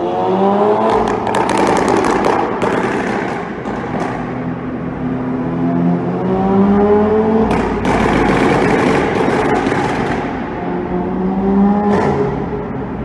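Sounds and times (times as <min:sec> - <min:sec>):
car engine revving: 0:00.0 - 0:13.0
exhaust crackles and pops: 0:00.8 - 0:04.5, 0:07.4 - 0:10.5.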